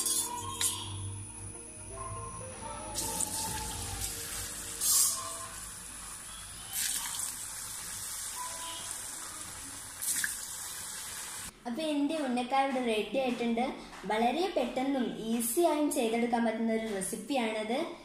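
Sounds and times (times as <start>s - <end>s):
hot oil spitting: 3.0s - 11.5s
oil sizzling: 3.0s - 11.5s.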